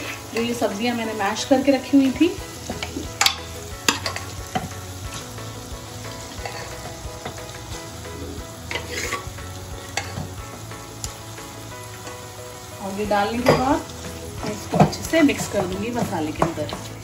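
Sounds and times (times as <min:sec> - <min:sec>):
onion and tomato sizzling in pan: 0:00.0 - 0:17.0
utensils knocking against pan: 0:02.7 - 0:04.7, 0:09.9 - 0:10.4, 0:13.3 - 0:13.8, 0:14.4 - 0:17.0.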